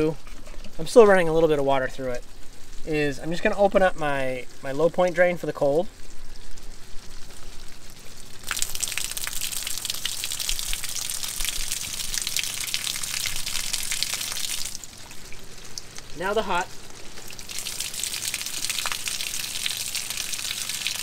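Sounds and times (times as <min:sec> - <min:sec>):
water gushing and splattering: 0:06.3 - 0:21.0.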